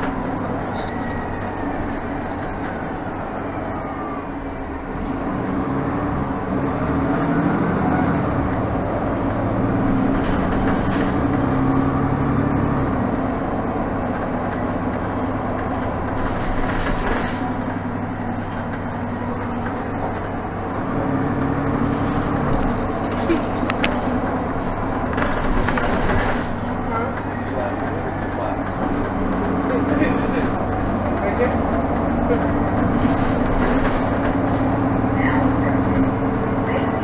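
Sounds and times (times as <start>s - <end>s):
bus engine hum: 0.0s - 37.0s
road noise: 0.0s - 37.0s.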